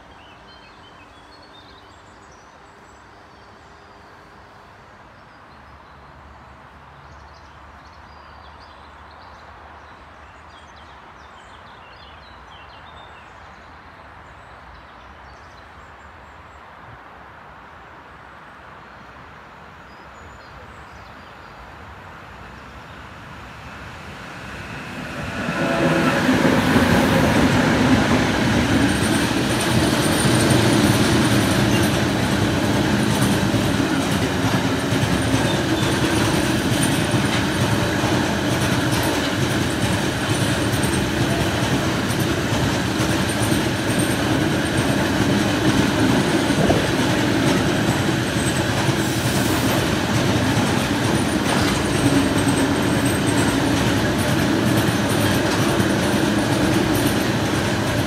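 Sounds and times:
freight train rumble: 21.8 - 58.0.

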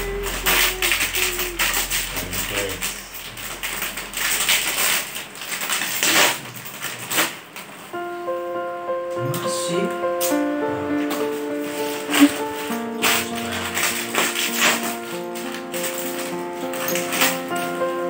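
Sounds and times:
music with held notes: 0.0 - 5.2, 7.9 - 18.0
plastic snack packet crinkling: 0.1 - 7.7, 11.1 - 18.0
snacks rattling into a bowl: 13.0 - 17.8.

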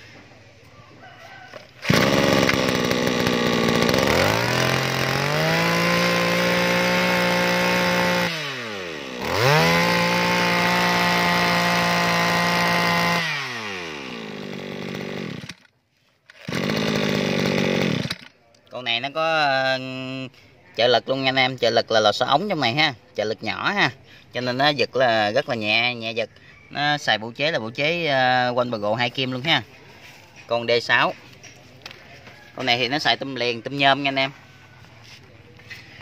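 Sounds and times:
brush cutter engine revving: 1.5 - 15.7, 16.3 - 18.4.

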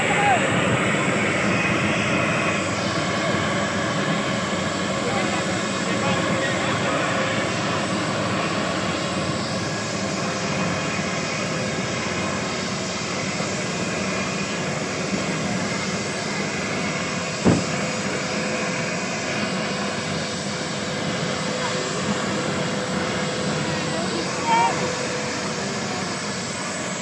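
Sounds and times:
helicopter turbine rushing: 0.0 - 27.0
short thump: 17.4 - 17.8.

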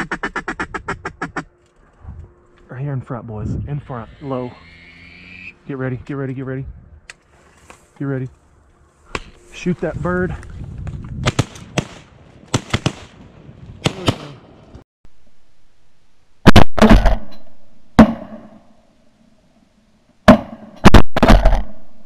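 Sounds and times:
close shotgun blasts: 11.2 - 13.2
shotguns firing: 11.2 - 13.2.

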